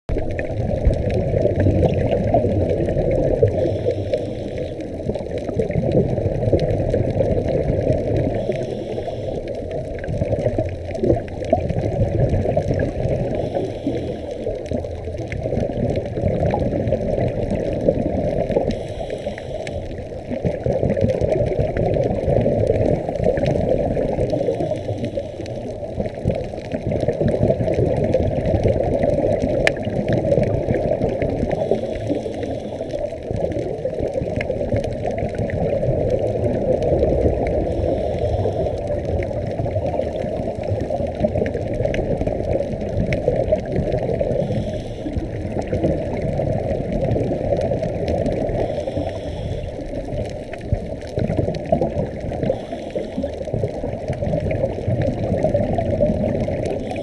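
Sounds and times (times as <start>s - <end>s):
bubbles gurgling: 0.1s - 57.0s
scuba regulator breathing: 3.4s - 5.2s, 8.2s - 9.8s, 13.2s - 14.8s, 18.6s - 20.4s, 22.8s - 25.9s, 31.3s - 33.2s, 37.2s - 39.2s, 44.2s - 45.8s, 48.3s - 50.4s, 52.3s - 53.8s, 56.7s - 57.0s.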